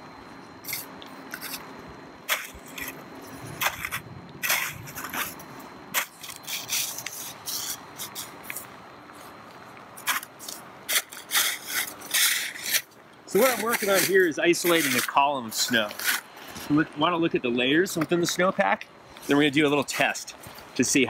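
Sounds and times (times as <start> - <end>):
snow shovel scraping and crunching: 0.6 - 1.6, 2.3 - 8.7, 10.0 - 16.8.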